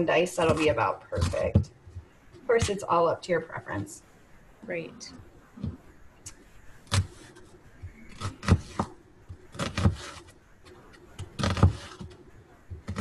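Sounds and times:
knife chopping on plastic board: 9.6s - 10.2s, 11.3s - 12.1s.

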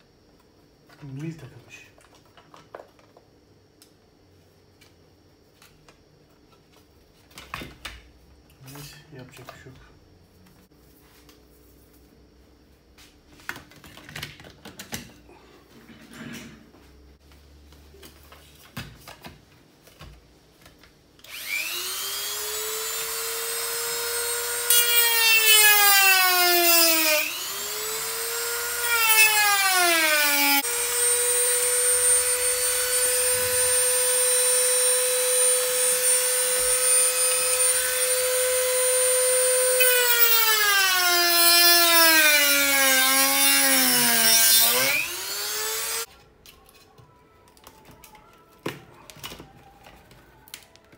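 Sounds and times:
rotary tool whine: 21.2s - 46.1s.

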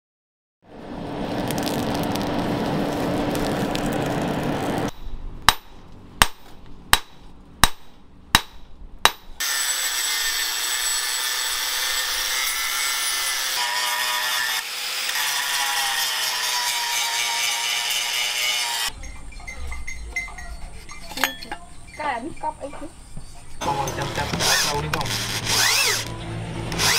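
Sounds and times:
forge fire rushing: 0.6s - 4.9s
angle grinder grinding steel: 9.4s - 22.5s, 23.3s - 26.9s
ringing strikes on metal: 18.9s - 22.6s.

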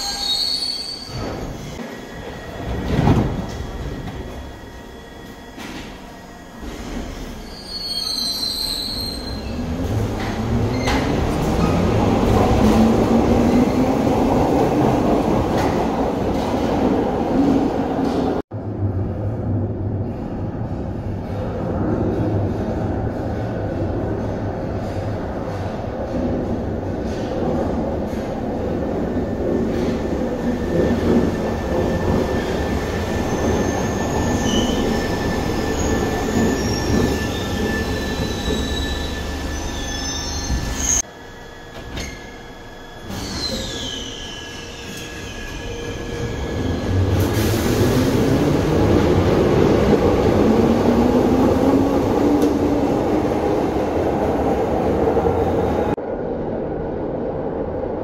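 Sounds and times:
wheels squealing on rails: 0.0s - 6.0s, 6.6s - 12.0s, 29.6s - 49.2s
train rumbling: 1.0s - 58.0s.

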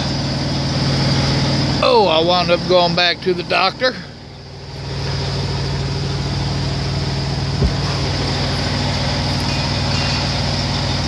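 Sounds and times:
truck engine hum in cab: 0.0s - 11.0s
short low thump: 7.5s - 8.2s.

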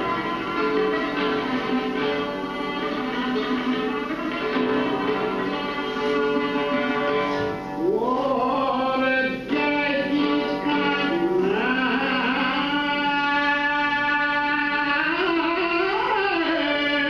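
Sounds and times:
lute and string accompaniment: 0.0s - 17.0s
man singing ornamented melody: 7.6s - 17.0s.

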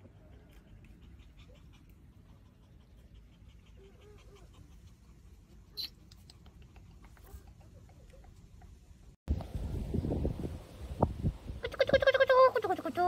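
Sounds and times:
leaves rustling: 9.4s - 13.0s.

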